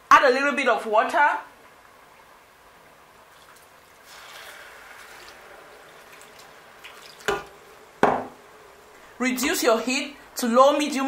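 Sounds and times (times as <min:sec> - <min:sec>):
water trickling into a pot: 0:03.3 - 0:07.7.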